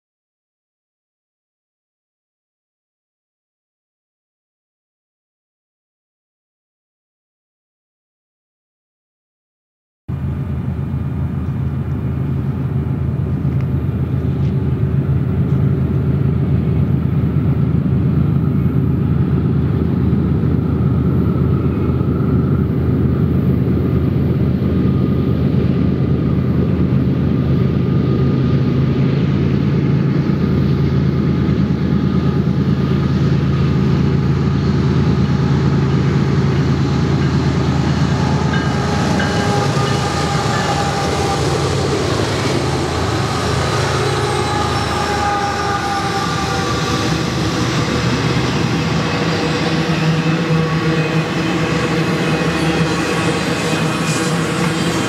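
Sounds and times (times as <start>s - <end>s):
locomotive engine drone: 10.1s - 55.0s.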